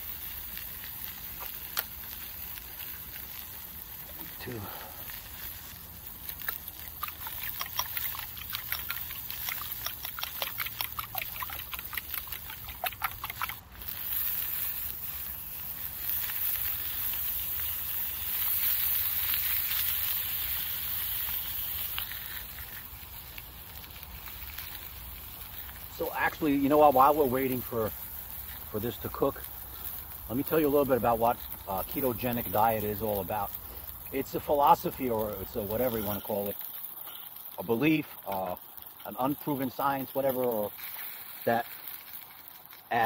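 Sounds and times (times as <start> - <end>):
sausages sizzling in frying pan: 0.0 - 43.0.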